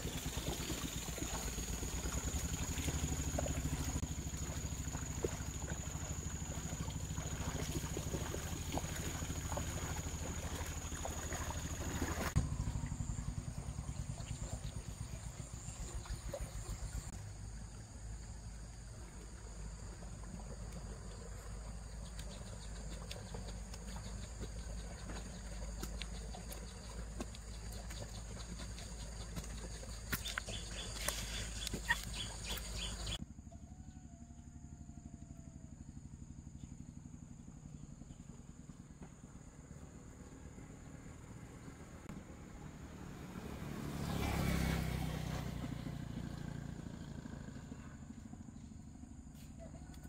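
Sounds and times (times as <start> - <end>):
engine running with rapid pulse: 0.0 - 50.0
steady low rumble: 12.3 - 18.1.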